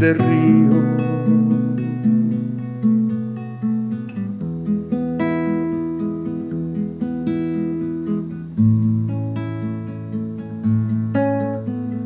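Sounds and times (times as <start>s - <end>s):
classical guitar plucking chords: 0.0s - 12.0s.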